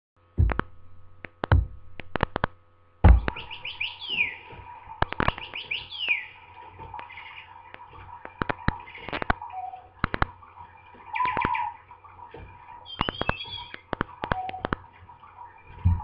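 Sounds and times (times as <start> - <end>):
sharp clicks: 0.4 - 4.2, 5.0 - 6.2, 10.0 - 10.3, 12.9 - 14.8
toy bird electronic chirping: 3.4 - 4.5, 5.3 - 6.4, 9.4 - 10.0, 11.1 - 11.8, 12.8 - 14.8.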